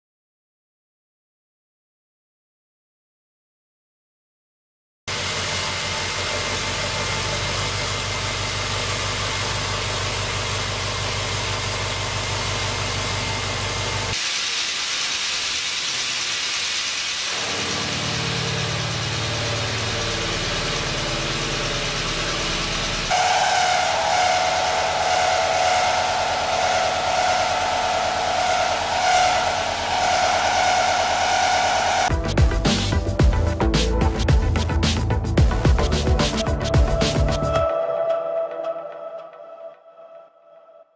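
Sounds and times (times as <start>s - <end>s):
milling machine cutting metal: 5.1s - 32.1s
ringing whine of cutting: 17.3s - 32.1s.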